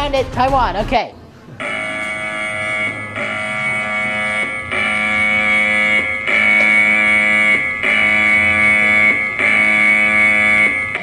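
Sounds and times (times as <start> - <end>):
electronic alarm chord: 1.6 - 11.0.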